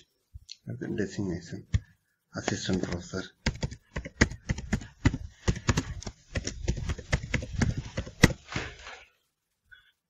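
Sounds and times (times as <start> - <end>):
keyboard typing: 1.7 - 8.4.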